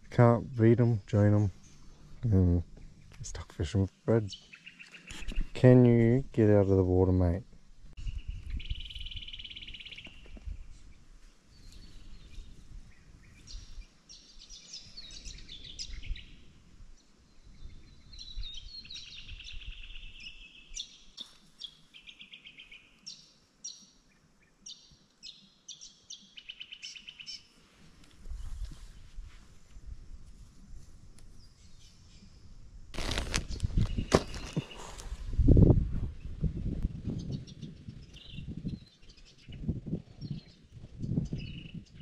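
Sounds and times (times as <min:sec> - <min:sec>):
high bird chirps: 0:08.0 - 0:10.4.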